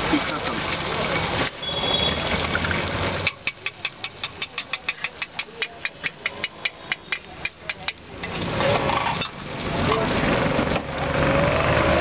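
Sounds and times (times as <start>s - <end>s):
street noise: 0.0s - 12.0s
metal spatula tapping on pan: 3.2s - 8.4s.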